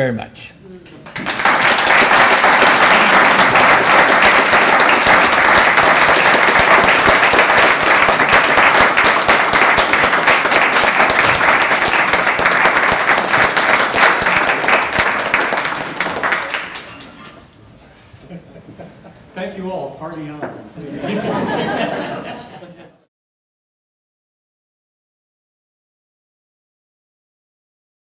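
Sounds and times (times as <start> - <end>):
audience applauding: 1.0 - 17.4.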